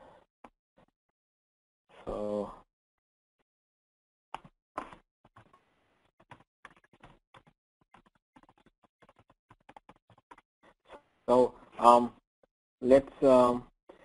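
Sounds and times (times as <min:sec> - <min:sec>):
keyboard typing: 0:06.2 - 0:10.5.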